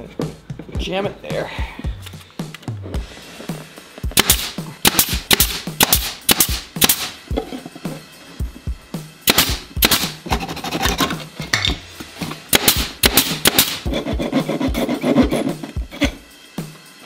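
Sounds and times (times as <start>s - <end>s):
handsaw cutting wood: 10.2s - 11.2s, 13.5s - 16.2s.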